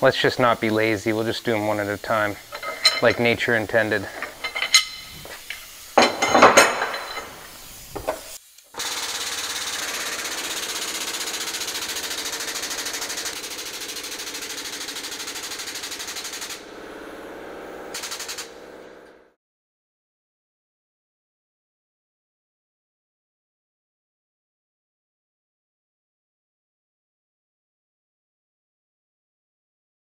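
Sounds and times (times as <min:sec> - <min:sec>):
steel bar clinking on metal tooling: 0:02.4 - 0:08.2
hydraulic pump buzzing rattle: 0:08.8 - 0:19.3.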